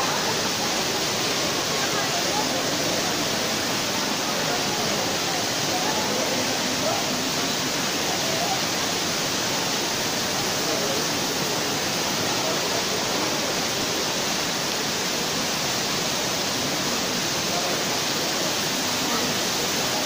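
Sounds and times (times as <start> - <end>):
crowd murmuring: 0.0 - 14.2
waterfall rushing: 0.0 - 20.0.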